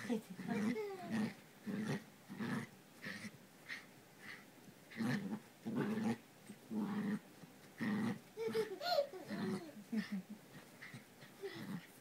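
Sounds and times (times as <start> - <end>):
puppy play-growling and yapping: 0.4 - 9.8.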